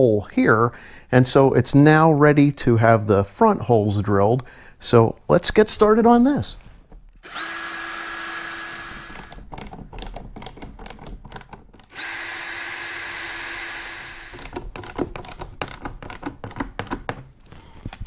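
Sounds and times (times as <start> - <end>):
cordless drill boring: 7.2 - 9.7, 11.8 - 15.8
clicks and rattles of tools: 9.0 - 12.0, 14.3 - 18.0.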